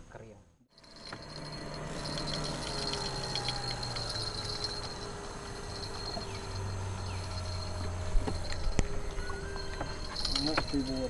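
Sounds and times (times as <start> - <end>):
fishing reel ticking: 0.8 - 8.9
high insect drone: 0.8 - 11.0
steady low hum: 0.8 - 11.0.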